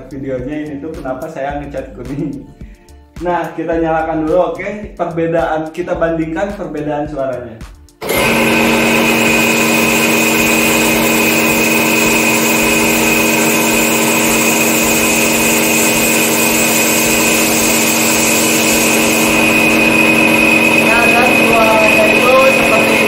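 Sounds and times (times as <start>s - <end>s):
air compressor running: 8.0s - 23.0s.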